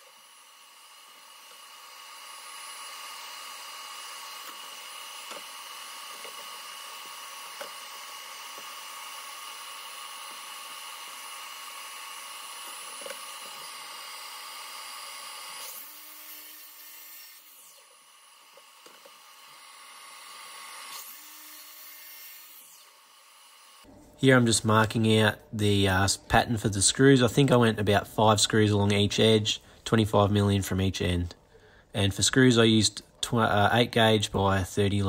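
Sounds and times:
miter saw motor whining: 0:00.0 - 0:23.9.

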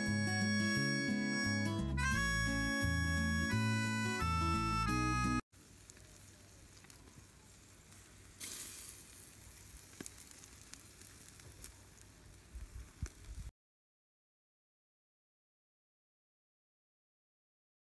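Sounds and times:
chicken sizzling over charcoal: 0:05.5 - 0:13.5
crackling pops: 0:05.6 - 0:13.5.

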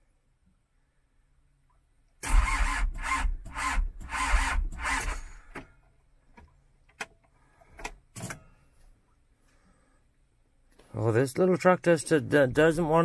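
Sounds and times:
diesel engine cranking: 0:02.2 - 0:05.6.

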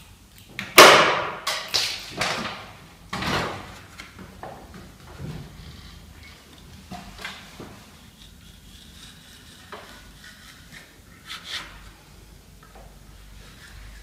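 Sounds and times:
utility knife cutting wallpaper: 0:07.7 - 0:12.0.

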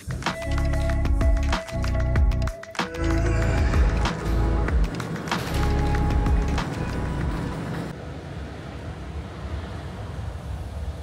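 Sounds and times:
music with deep bass and beat: 0:00.0 - 0:07.6.

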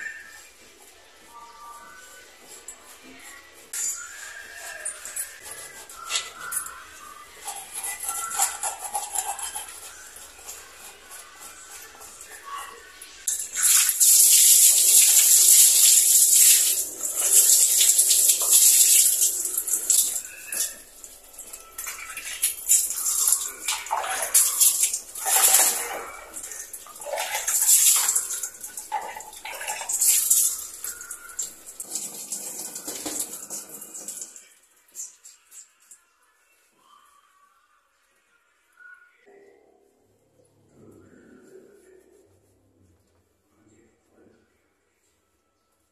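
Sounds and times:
water pouring and splashing: 0:13.3 - 0:34.5.

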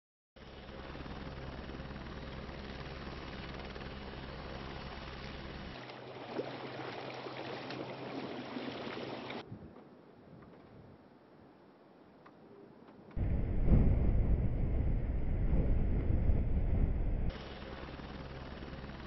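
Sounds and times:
engine drone: 0:00.4 - 0:08.0, 0:13.2 - 0:19.0
rushing noise: 0:13.2 - 0:17.8.

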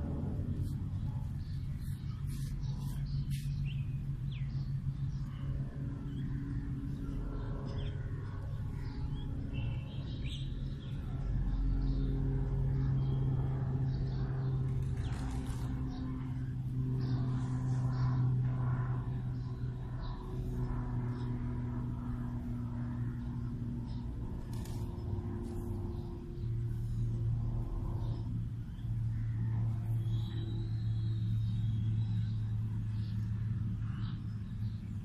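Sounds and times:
low rumble and hum: 0:00.0 - 0:35.0
faint bird chirps: 0:29.9 - 0:33.2.

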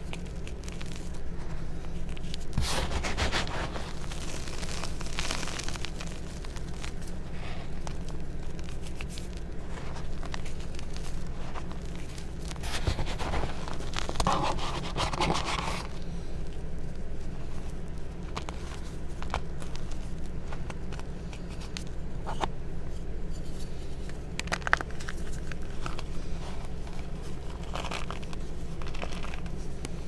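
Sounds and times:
chalk crunching in hands: 0:00.0 - 0:16.3, 0:23.3 - 0:30.0
low steady hum: 0:00.0 - 0:30.0.

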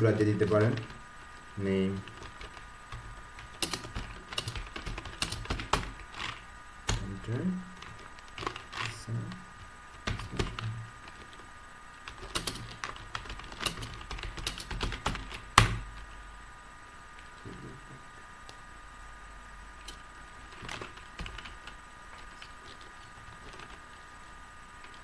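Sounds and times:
computer keyboard typing: 0:00.3 - 0:01.0, 0:01.9 - 0:07.1, 0:07.8 - 0:09.0, 0:10.0 - 0:11.4, 0:12.1 - 0:15.8, 0:19.9 - 0:23.8.

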